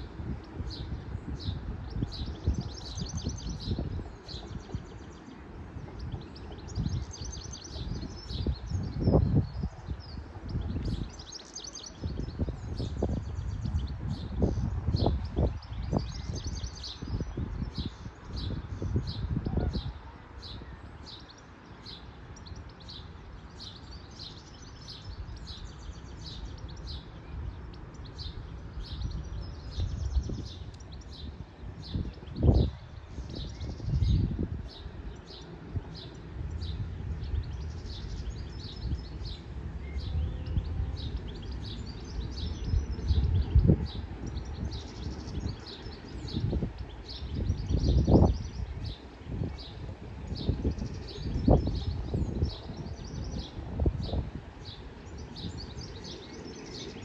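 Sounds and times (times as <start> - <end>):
small birds chirping: 0.0 - 57.0
wind buffeting microphone: 0.0 - 57.0
steady low rumble: 25.0 - 57.0.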